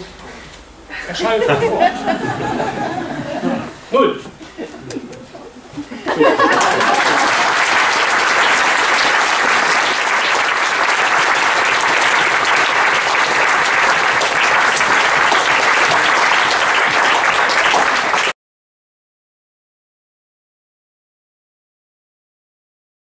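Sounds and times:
audience applauding: 6.1s - 18.4s.

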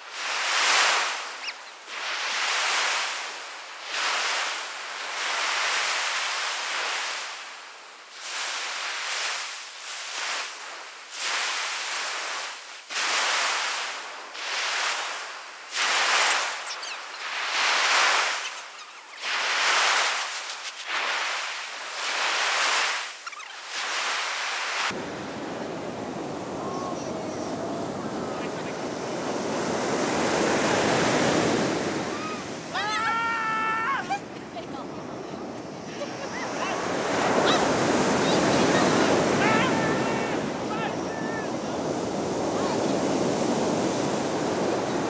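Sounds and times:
surf on pebble beach: 0.0s - 45.0s
surf breaking on pebbles: 17.3s - 33.3s
person calling out: 32.1s - 34.3s, 38.9s - 41.6s.

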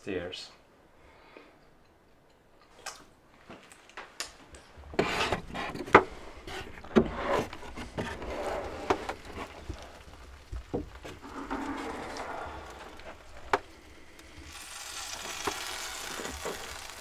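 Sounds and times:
wood rubbing and scraping: 4.7s - 17.0s.

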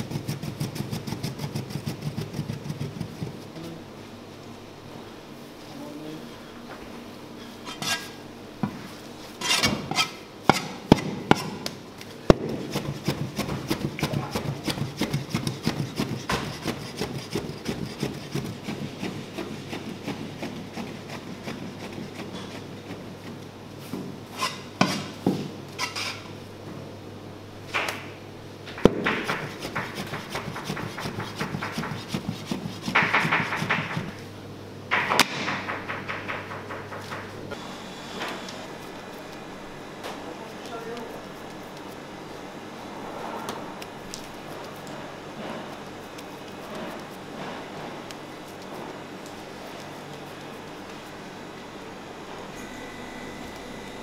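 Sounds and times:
knife chopping on wooden board: 9.5s - 11.7s, 12.3s - 22.6s, 28.8s - 34.2s
louder knocks: 34.9s - 37.3s.

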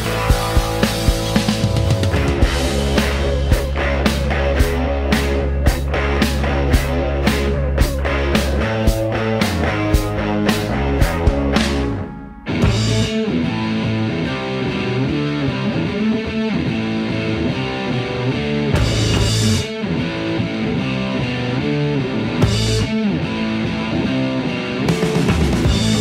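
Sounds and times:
rock music with electric guitar: 0.0s - 26.0s.

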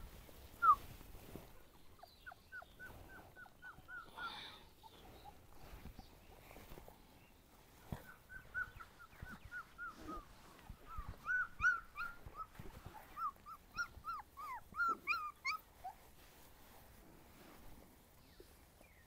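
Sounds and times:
puppies whimpering: 2.0s - 5.6s, 8.0s - 16.1s.

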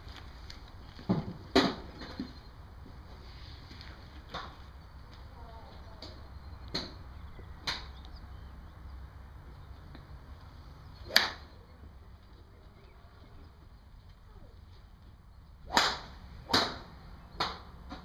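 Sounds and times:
golf clubs striking balls: 1.0s - 2.4s, 4.2s - 5.2s, 6.0s - 7.0s, 7.6s - 8.0s, 11.0s - 11.7s, 15.6s - 18.0s.

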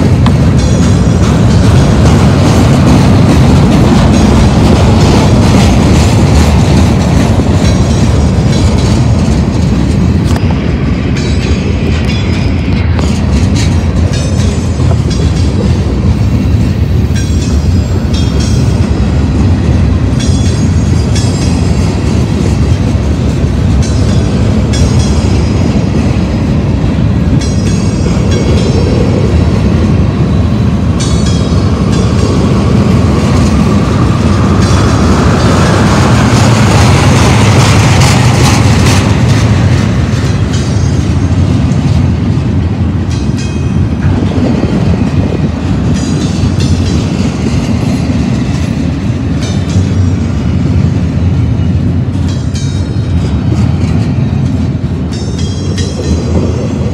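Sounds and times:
train wheels rumbling on rails: 0.0s - 56.9s.

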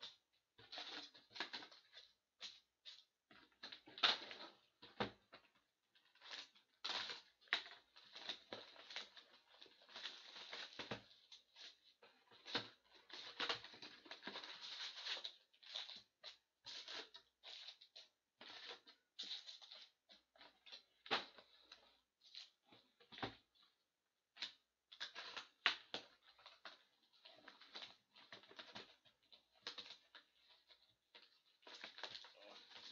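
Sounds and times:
plastic wrap crinkling: 24.4s - 32.9s.

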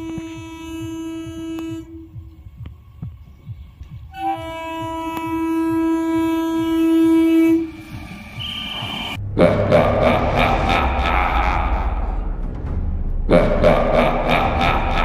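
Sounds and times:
train horn blasts: 0.0s - 2.4s, 4.1s - 9.2s
low regular throbbing: 0.0s - 15.0s.

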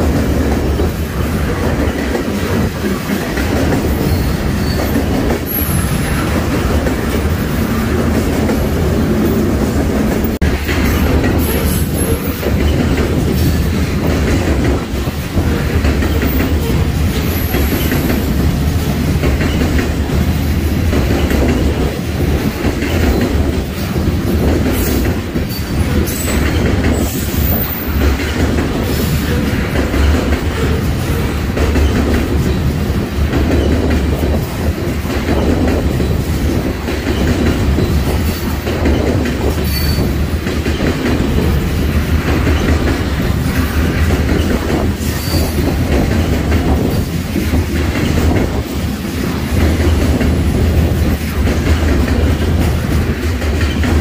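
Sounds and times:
train wheels rumbling on rail: 0.0s - 54.0s
high wheel squeal: 39.6s - 40.1s.

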